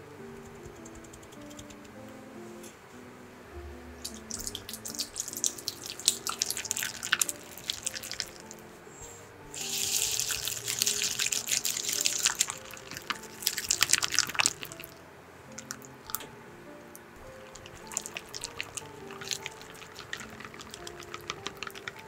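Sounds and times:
soft background music: 0.0 - 22.0
steady hiss: 0.0 - 22.0
whisk beating cream cheese: 9.6 - 14.8, 17.4 - 22.0.

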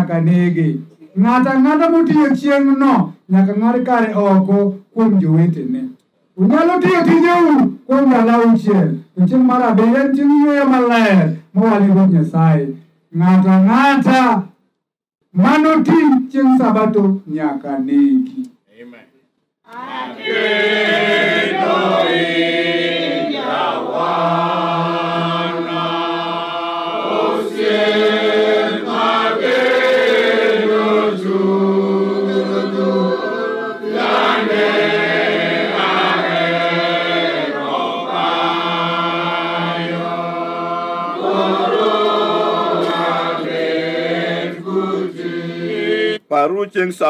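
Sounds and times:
men singing a chanted hymn: 20.0 - 46.2.

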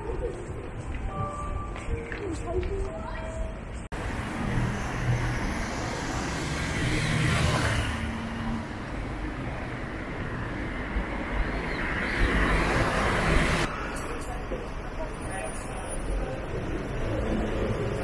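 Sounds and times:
cars passing: 3.9 - 18.0.

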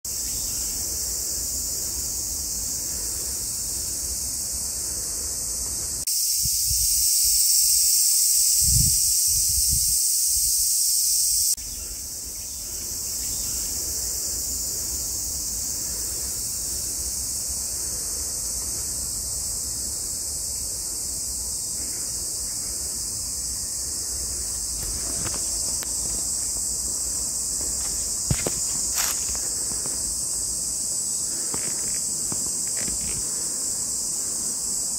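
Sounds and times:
insects chorus: 0.0 - 34.9.

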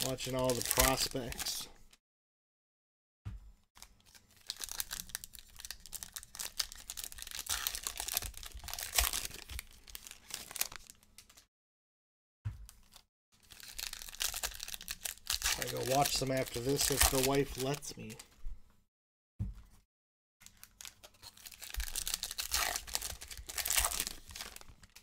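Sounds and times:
plastic wrappers crinkling and tearing: 0.0 - 1.7, 3.8 - 11.4, 12.7 - 18.3, 20.4 - 25.0.

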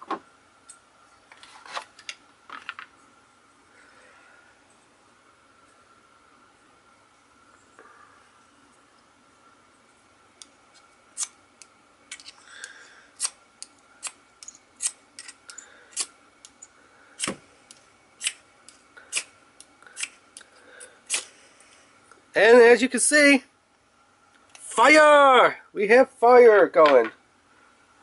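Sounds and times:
striker scraping fire steel rod: 13.2 - 17.4.

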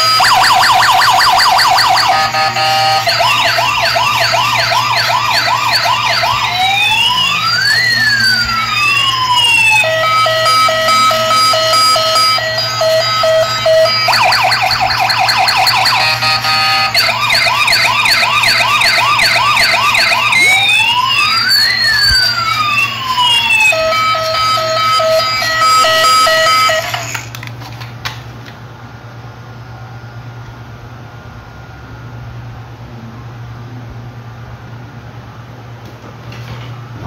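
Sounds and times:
toy police car electronic siren: 0.0 - 27.5.

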